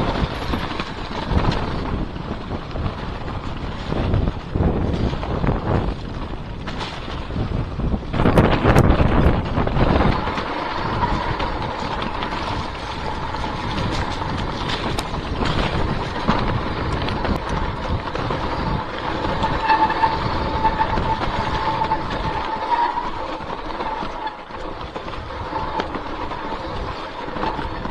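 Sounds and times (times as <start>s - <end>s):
bike rattling: 0.0s - 27.9s
bike tyres on dirt trail: 0.0s - 27.9s
wind buffeting microphone: 0.0s - 27.9s
thin whine: 8.1s - 27.9s.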